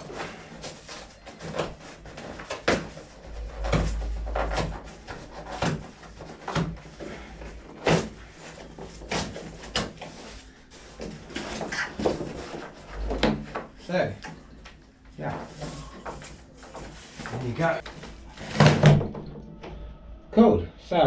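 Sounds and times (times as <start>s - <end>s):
cardboard crinkling and scraping: 0.0s - 13.8s, 15.2s - 18.9s
knocks and bumps: 2.7s - 6.9s.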